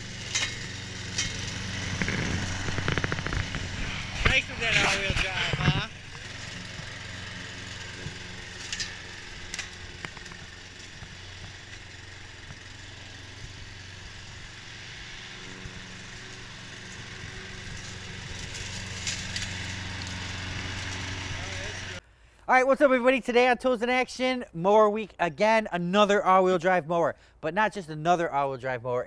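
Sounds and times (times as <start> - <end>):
lawn mower engine running: 0.0 - 22.0.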